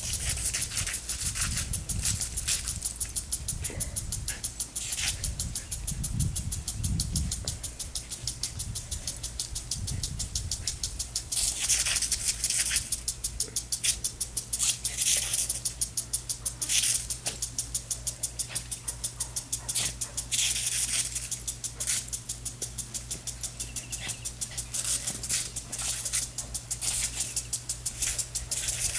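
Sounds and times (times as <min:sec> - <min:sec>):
impact sprinkler ticking: 0:00.0 - 0:28.9
sprinkler spray hissing: 0:00.0 - 0:28.9.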